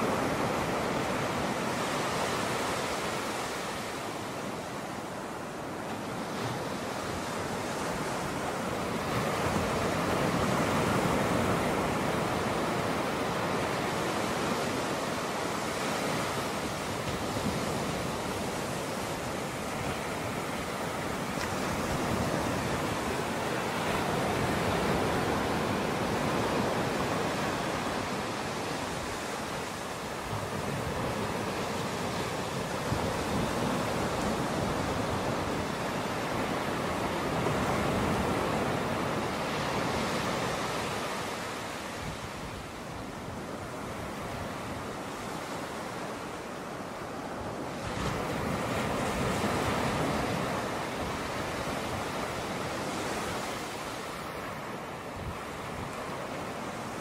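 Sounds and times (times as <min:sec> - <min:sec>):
ocean surf breaking on beach: 0:00.0 - 0:57.0.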